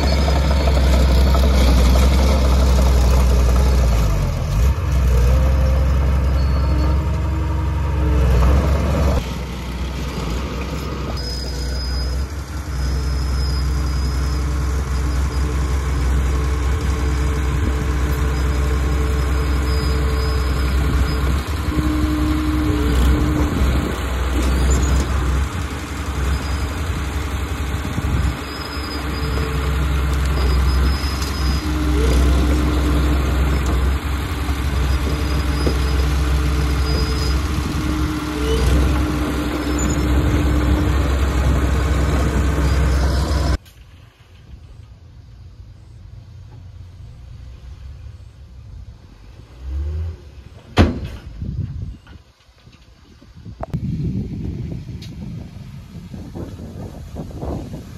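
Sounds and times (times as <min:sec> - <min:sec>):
blade pushing dirt: 0:00.0 - 0:44.0
bulldozer diesel engine under load: 0:00.0 - 0:51.4, 0:53.4 - 0:57.9.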